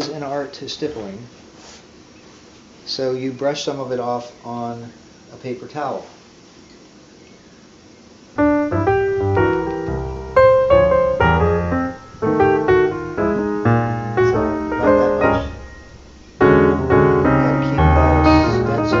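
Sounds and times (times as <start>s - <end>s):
piano music: 8.4s - 19.0s.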